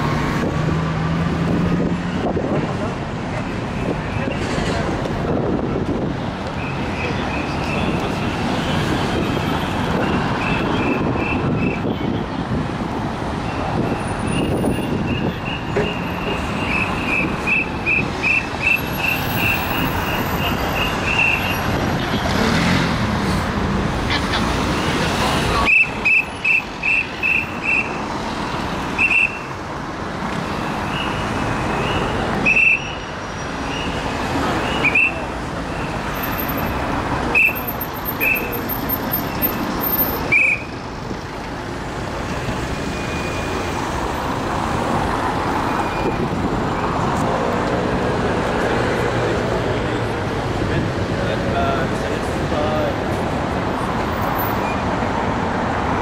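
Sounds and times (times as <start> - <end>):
road traffic passing: 0.0 - 56.0.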